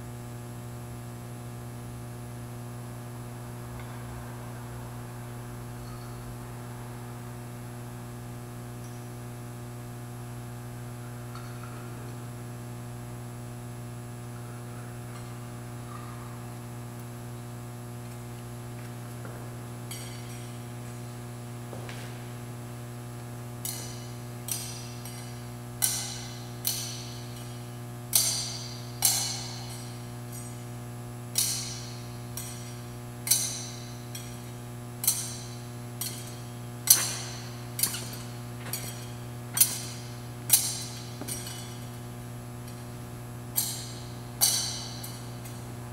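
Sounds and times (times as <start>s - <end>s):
thurible chains clinking: 19.9s - 21.0s, 23.6s - 30.7s, 31.4s - 43.0s, 43.6s - 45.7s.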